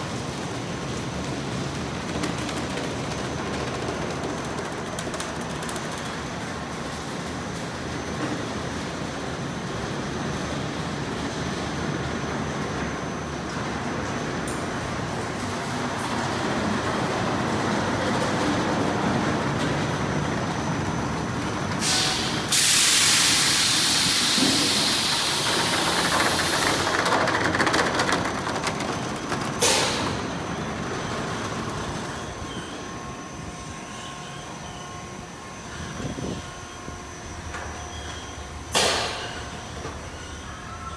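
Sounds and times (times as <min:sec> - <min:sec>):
loud hiss: 0:21.8 - 0:26.9.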